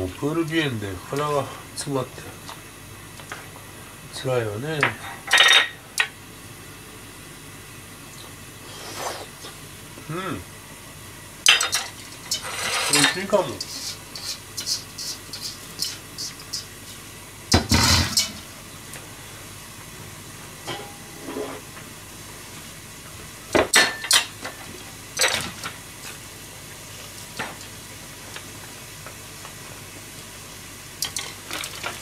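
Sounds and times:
steady hiss: 0.0s - 32.0s
utensils scraping a saucepan: 12.2s - 16.7s
spoon stirring pot: 12.3s - 16.7s.

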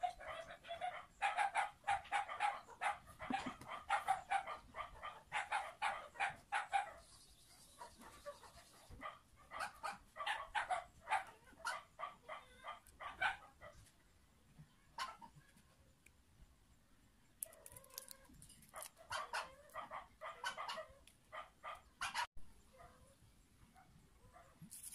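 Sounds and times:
rapid repeated animal calls: 17.4s - 22.3s.

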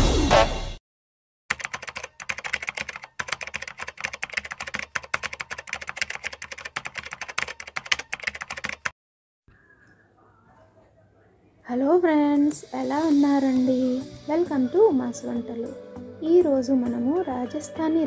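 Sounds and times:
rapid keyboard typing: 1.5s - 9.0s.

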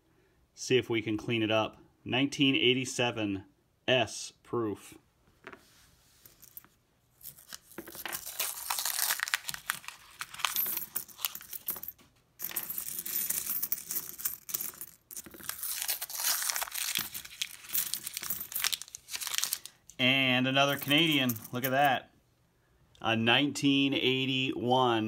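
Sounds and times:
coins clinking: 6.3s - 20.0s, 20.6s - 21.9s
paper wrapper rustling and tearing: 7.3s - 10.5s, 15.3s - 19.8s.

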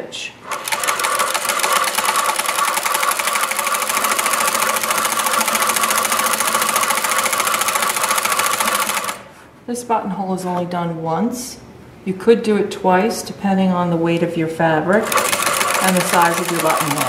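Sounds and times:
sewing machine clattering: 0.4s - 9.3s, 14.9s - 17.0s.

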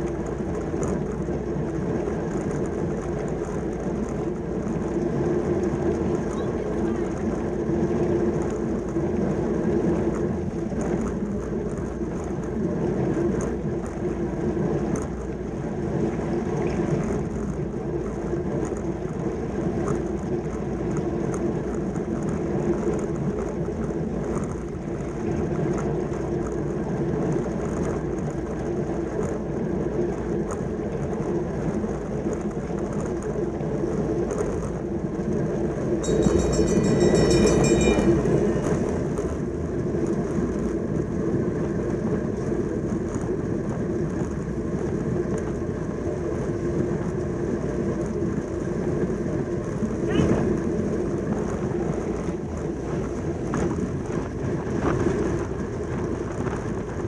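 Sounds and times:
bicycle rolling noise: 0.0s - 57.0s
wind rumble: 0.0s - 57.0s
high ringing sound: 36.0s - 39.5s.

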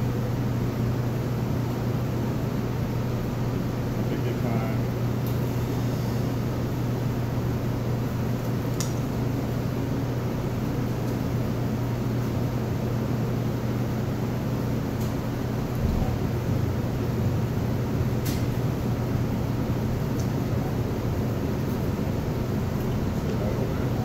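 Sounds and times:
kitchen machinery hum: 0.0s - 24.0s.

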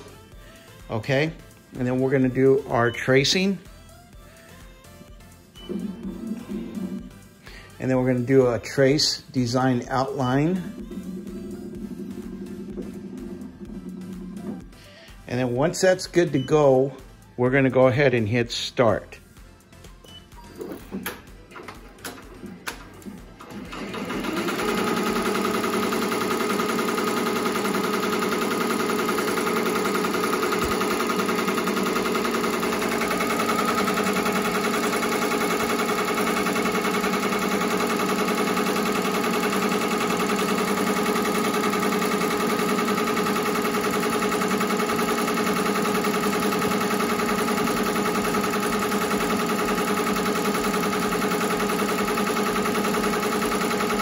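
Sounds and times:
embroidery machine rattling: 22.3s - 54.0s.

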